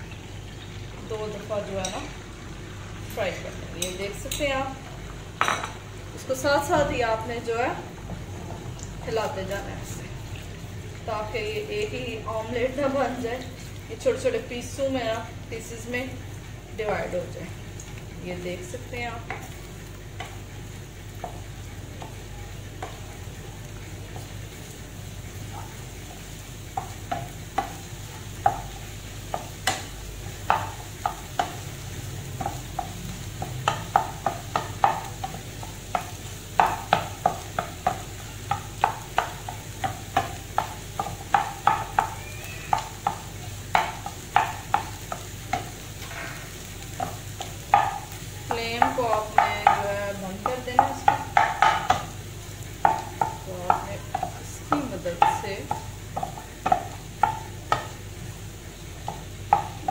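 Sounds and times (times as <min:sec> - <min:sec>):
hot oil sizzling: 0:00.0 - 0:59.9
spatula scraping frying pan: 0:24.1 - 0:52.2.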